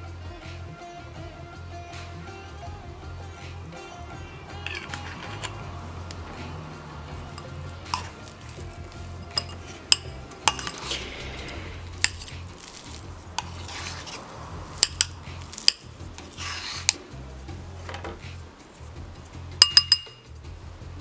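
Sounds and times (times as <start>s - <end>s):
spoon clinking against bowl: 4.6s - 6.2s, 7.4s - 10.9s, 19.6s - 20.3s
spoon scraping ceramic bowl: 4.6s - 6.2s, 7.4s - 17.0s.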